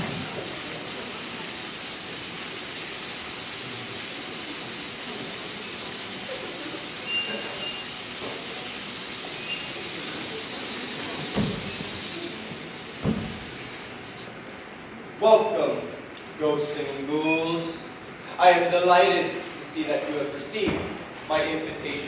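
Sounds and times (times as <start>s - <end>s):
steady hiss: 0.0s - 14.4s
thump: 11.3s - 11.7s, 13.0s - 13.4s, 20.7s - 21.0s.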